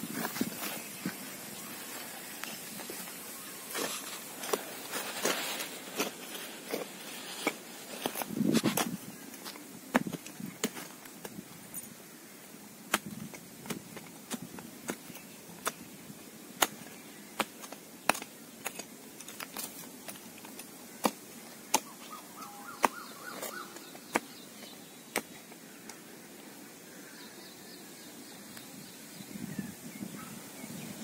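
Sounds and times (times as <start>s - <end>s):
hand hoe chopping stony soil: 2.4s - 11.4s, 12.8s - 15.9s, 16.5s - 26.0s.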